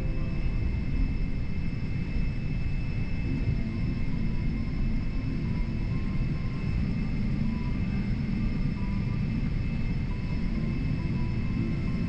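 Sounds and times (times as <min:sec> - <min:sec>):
jet engine high whine: 0:00.0 - 0:12.0
jet engines low rumble: 0:00.0 - 0:12.0.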